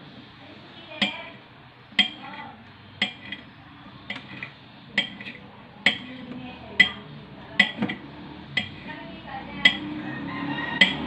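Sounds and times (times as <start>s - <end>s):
blade clinking on ceramic plate: 4.1s - 6.2s, 6.8s - 9.0s, 9.6s - 9.9s, 10.8s - 11.0s.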